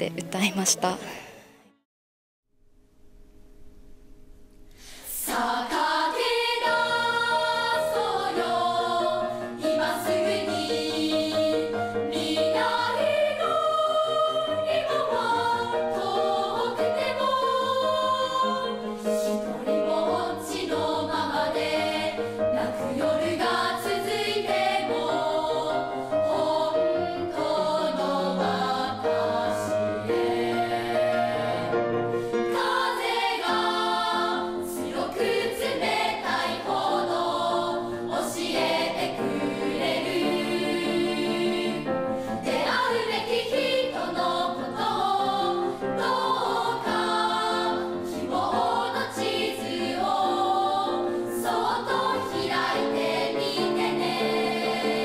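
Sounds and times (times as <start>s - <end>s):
children's choir singing: 5.1s - 55.0s.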